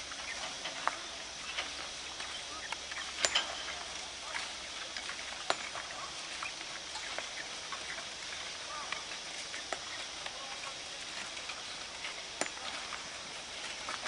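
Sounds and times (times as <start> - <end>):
steady high hiss: 0.0 - 14.0
sharp ringing clinks: 3.1 - 4.0, 5.4 - 6.0, 12.3 - 13.1.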